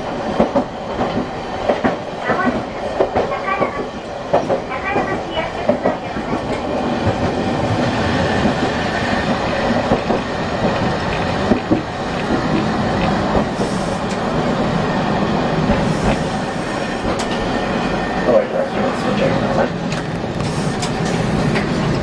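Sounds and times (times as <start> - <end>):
tram wheels and motor rumbling: 0.0 - 22.0
wheels knocking on rails: 0.3 - 14.2.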